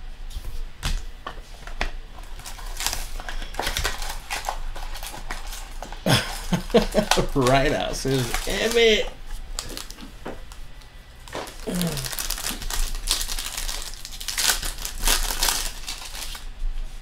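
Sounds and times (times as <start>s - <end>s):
foil wrappers crinkling and tearing: 2.1s - 16.6s.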